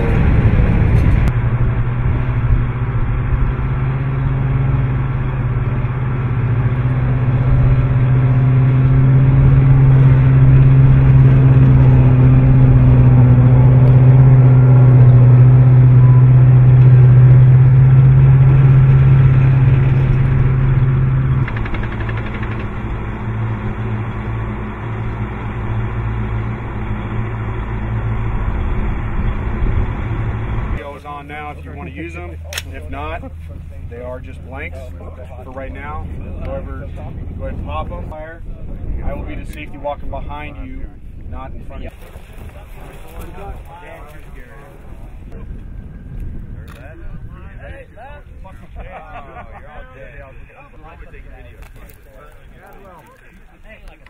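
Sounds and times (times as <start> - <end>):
diesel engine droning: 0.0 - 54.0.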